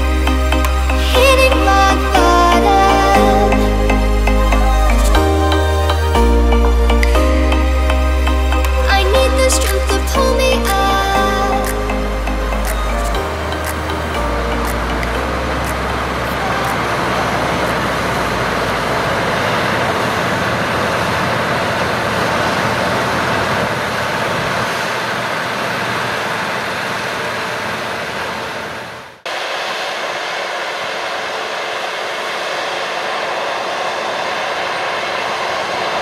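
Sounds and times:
music: 0.0 - 17.9
harvesting machinery running: 12.6 - 28.5.

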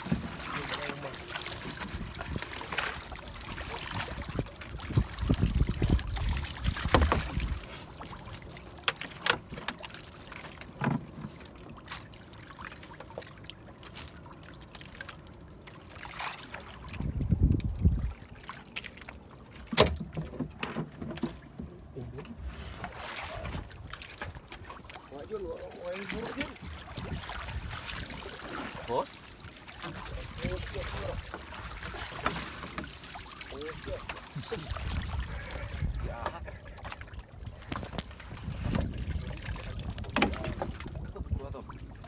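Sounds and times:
water sloshing against boat: 0.0 - 42.0
trap knocking against hull: 6.8 - 7.4.

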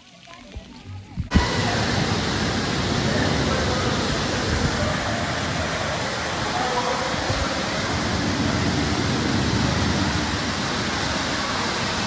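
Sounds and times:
rushing water: 0.0 - 12.0.

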